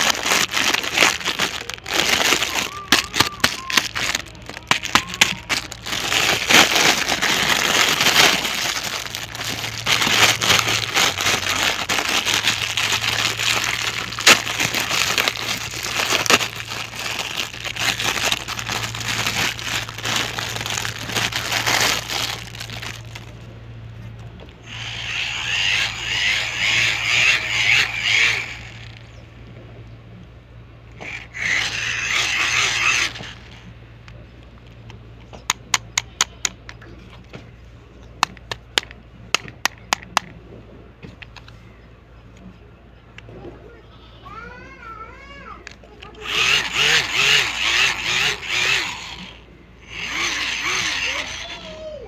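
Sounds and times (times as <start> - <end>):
plastic packaging crinkling: 0.0 - 23.5, 24.1 - 29.2, 31.1 - 33.6, 46.2 - 49.3.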